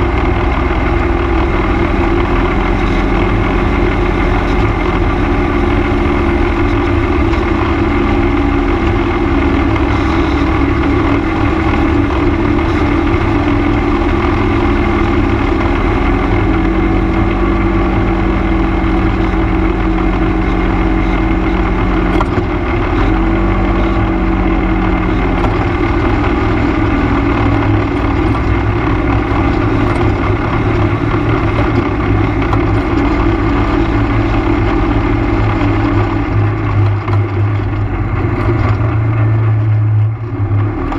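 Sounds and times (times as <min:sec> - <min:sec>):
atv engine running: 0:00.0 - 0:40.9.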